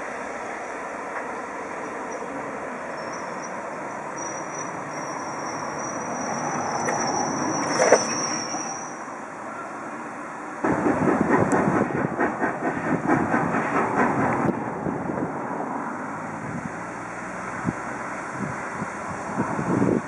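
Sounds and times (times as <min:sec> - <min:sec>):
train rumbling: 0:00.0 - 0:20.0
high steady squeal: 0:00.5 - 0:10.2
wheels clicking and clanking: 0:03.0 - 0:08.9.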